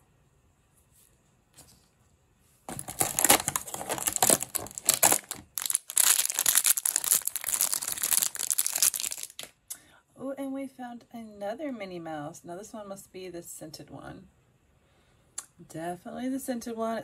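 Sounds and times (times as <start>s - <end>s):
plastic wrapper crumpling and tearing: 2.7s - 9.5s.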